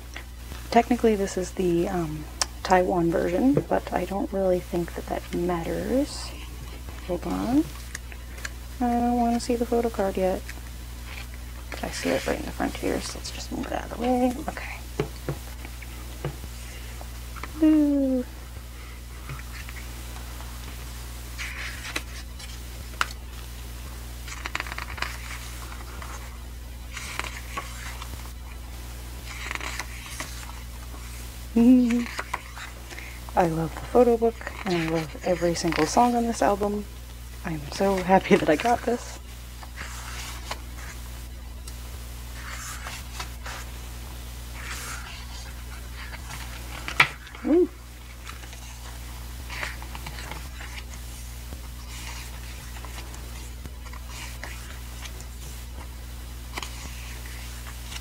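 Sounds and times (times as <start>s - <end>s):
paper pages turning: 21.4s - 23.2s, 24.2s - 28.6s, 29.2s - 36.4s, 37.8s - 39.0s, 39.6s - 41.0s, 42.4s - 43.7s, 44.6s - 55.9s, 56.5s - 58.0s.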